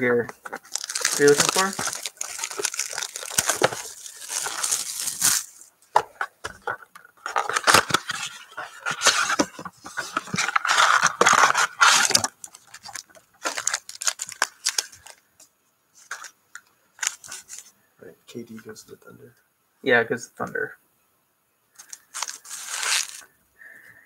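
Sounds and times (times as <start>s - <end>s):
rustles and clicks of packs: 0.4s - 5.6s, 8.8s - 15.2s, 21.8s - 23.2s
cardboard ripping and crinkling: 0.6s - 5.6s, 7.2s - 15.1s, 21.8s - 23.2s.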